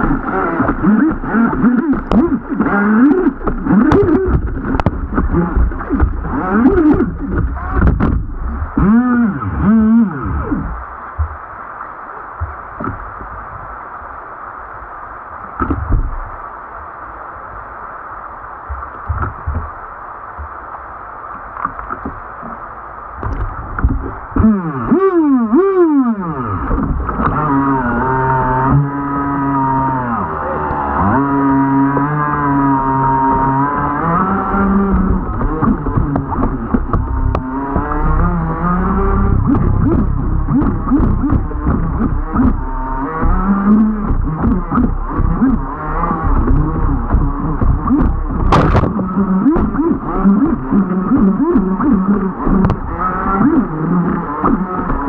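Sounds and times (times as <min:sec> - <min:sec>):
toy boat motor whining: 0:00.0 - 0:10.8, 0:24.3 - 0:55.0
short low bumps: 0:00.0 - 0:11.7, 0:18.6 - 0:55.0
rushing river water: 0:00.0 - 0:55.0.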